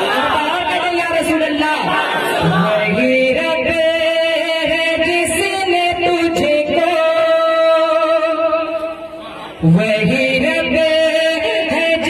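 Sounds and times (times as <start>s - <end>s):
man singing into a microphone: 2.4s - 12.0s.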